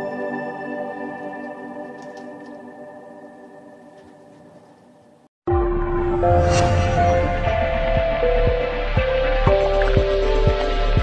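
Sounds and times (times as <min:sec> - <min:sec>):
ambient synthesizer chords: 0:05.5 - 0:11.0.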